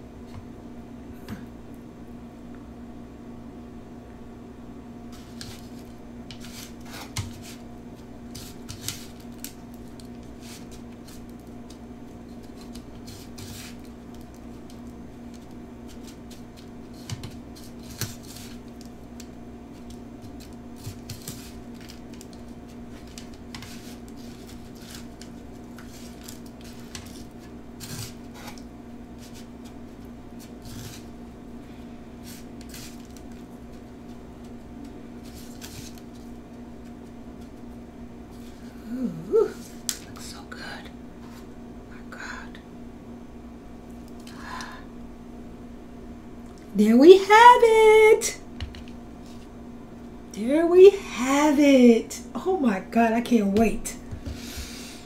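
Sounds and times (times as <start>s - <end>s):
crisp crunching and scraping: 19.8s - 29.7s, 32.2s - 34.5s, 35.2s - 36.3s.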